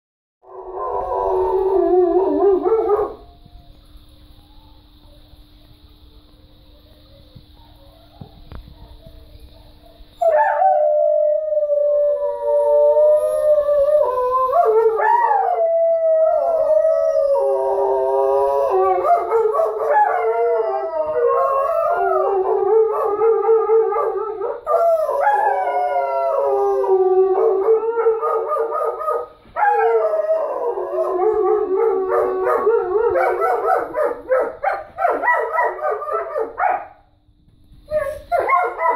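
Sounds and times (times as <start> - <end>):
dogs howling: 0.4 - 3.5, 10.2 - 36.8, 37.9 - 38.9.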